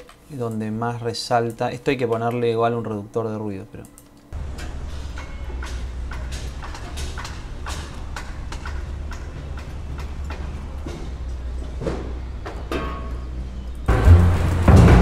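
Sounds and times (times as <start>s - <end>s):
sharp knocks and clanks: 4.4s - 15.0s
traffic rumble: 4.4s - 15.0s.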